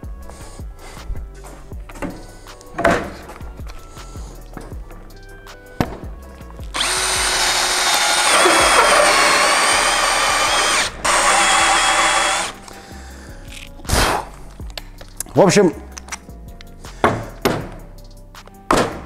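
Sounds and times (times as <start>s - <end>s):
drill whining through wood: 6.7s - 12.6s.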